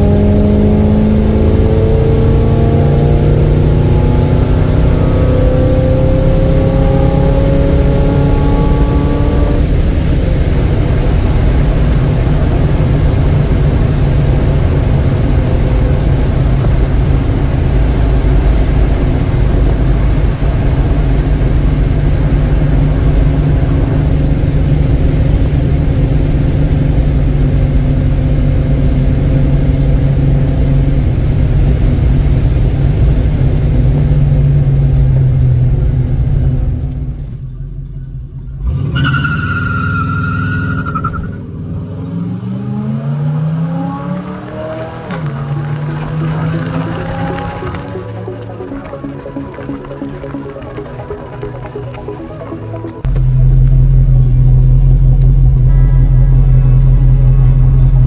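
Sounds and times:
car engine hum: 0:00.0 - 0:58.0
road and wind noise: 0:00.0 - 0:58.0.

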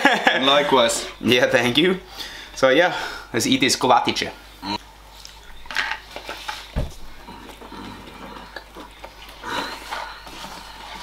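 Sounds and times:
people chewing pastry: 0:04.6 - 0:11.0
dull thump: 0:06.8 - 0:07.1.

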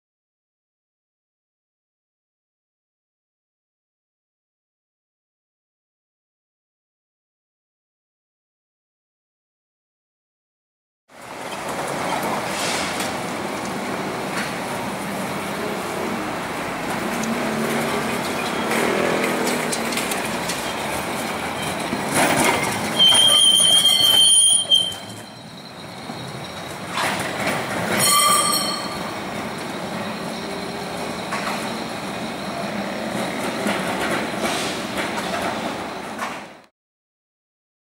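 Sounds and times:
traffic noise: 0:11.1 - 0:36.6
tram running on rails: 0:11.1 - 0:36.7
tram wheels squealing: 0:11.2 - 0:36.6.

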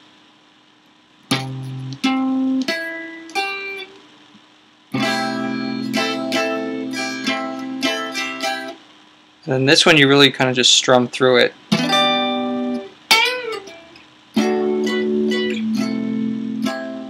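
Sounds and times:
electric guitar picked notes: 0:01.3 - 0:04.0, 0:04.9 - 0:08.8, 0:11.7 - 0:17.0.

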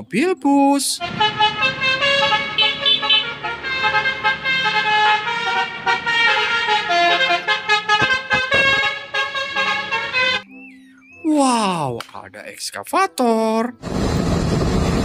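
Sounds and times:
traffic rushing past: 0:01.0 - 0:10.4
bus musical horn melody: 0:01.0 - 0:10.6.

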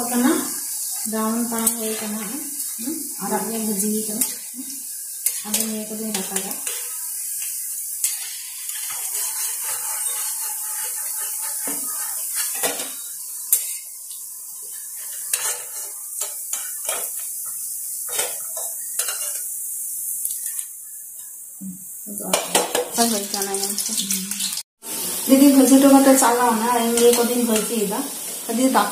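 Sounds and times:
oil sizzling: 0:00.0 - 0:28.9
spatula scraping and clinking on pan: 0:05.2 - 0:19.6, 0:26.9 - 0:28.3.

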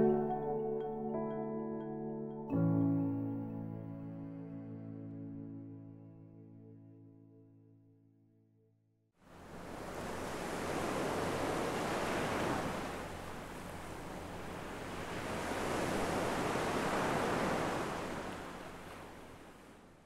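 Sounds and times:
ocean waves washing in: 0:09.2 - 0:20.0.

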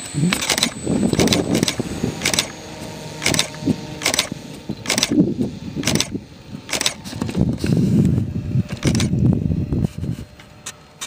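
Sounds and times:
model airplane engine running: 0:00.0 - 0:11.0
sharp repeating click: 0:00.2 - 0:02.6, 0:03.2 - 0:05.2, 0:05.8 - 0:07.0, 0:08.7 - 0:09.1
wind rumble on microphone: 0:00.6 - 0:10.6.

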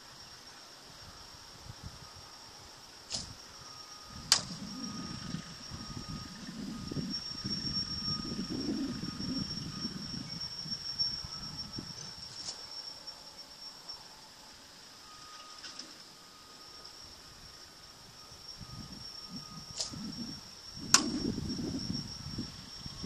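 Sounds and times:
steady high whine: 0:00.0 - 0:23.0
wind rumble: 0:00.9 - 0:12.8, 0:16.8 - 0:23.0.

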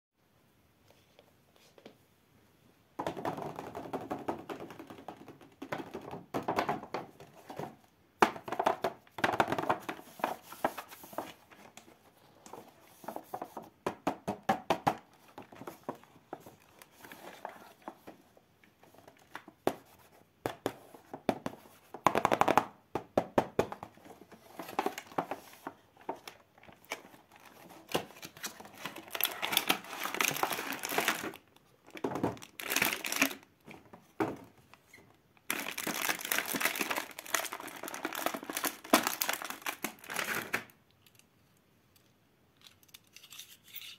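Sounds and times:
plastic blister tray crinkling: 0:24.0 - 0:33.5, 0:35.5 - 0:40.8.

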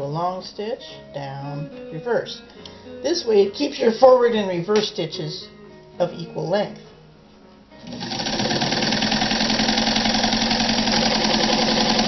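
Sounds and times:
sewing machine sewing: 0:07.8 - 0:12.0.

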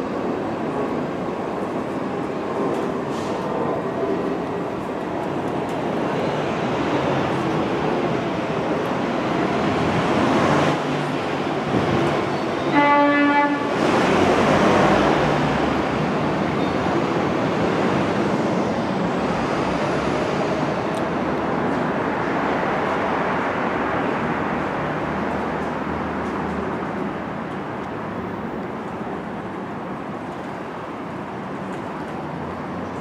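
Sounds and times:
subway train wheel and rail noise: 0:00.0 - 0:33.0
train horn blast: 0:12.7 - 0:13.8.

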